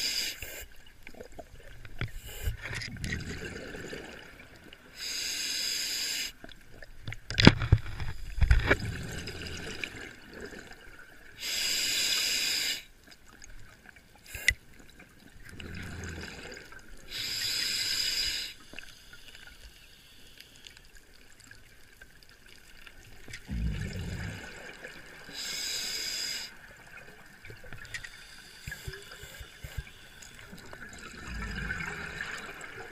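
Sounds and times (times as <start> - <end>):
hissing regulator inhale: 0.0 - 0.7, 4.9 - 6.4, 11.4 - 12.9, 17.1 - 20.7, 25.3 - 26.6, 27.8 - 30.6
exhaled bubbles rumbling: 2.9 - 4.6, 23.4 - 25.2, 30.5 - 32.9.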